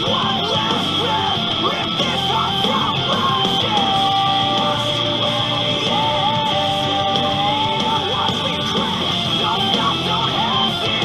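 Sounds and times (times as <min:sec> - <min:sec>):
rock music with vocals: 0:00.0 - 0:11.0.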